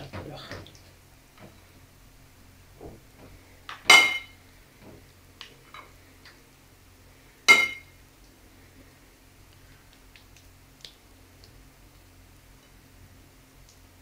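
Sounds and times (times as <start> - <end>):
metal spoon clinking on plate: 3.9 - 4.3, 7.5 - 7.9.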